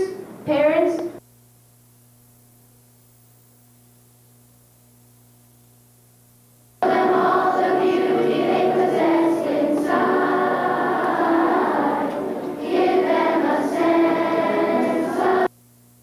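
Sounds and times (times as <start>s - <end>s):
faint electrical hum: 0.0s - 16.0s
children's choir singing: 6.8s - 15.5s.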